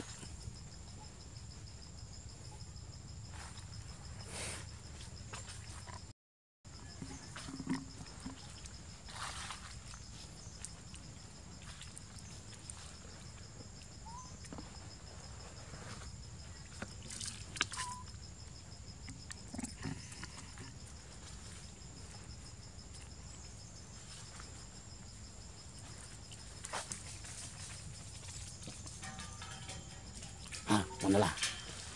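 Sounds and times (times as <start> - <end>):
brief squeaks: 17.6 - 18.1.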